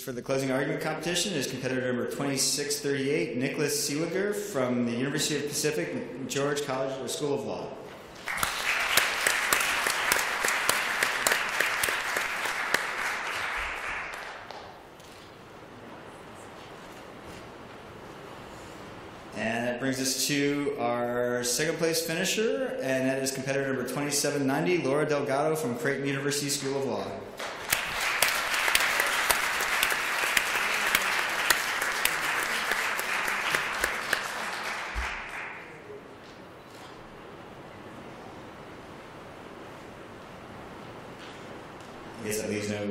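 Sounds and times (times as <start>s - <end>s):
audience applauding: 8.1s - 14.9s, 27.4s - 36.1s.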